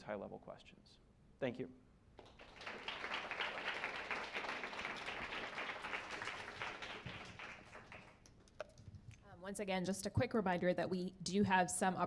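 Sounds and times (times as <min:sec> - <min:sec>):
audience applauding: 0:02.2 - 0:08.3.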